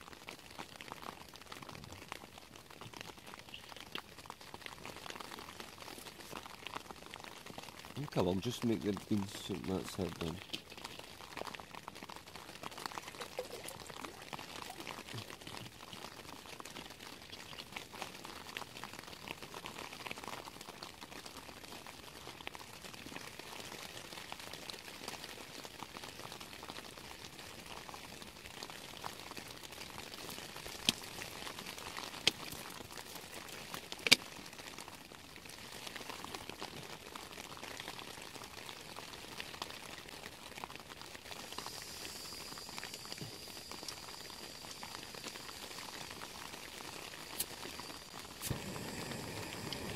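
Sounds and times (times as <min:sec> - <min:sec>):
rain hissing on a tent: 0:00.0 - 0:49.9
water poured into a pot: 0:11.0 - 0:16.6.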